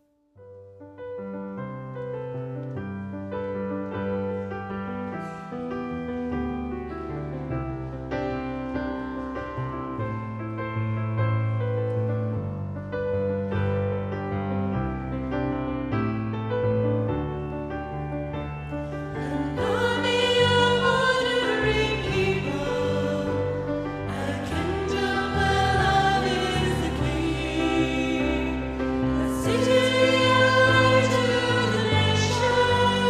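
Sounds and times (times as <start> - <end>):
keyboard accompaniment: 0.0 - 33.0
voices singing worship song: 19.4 - 33.0.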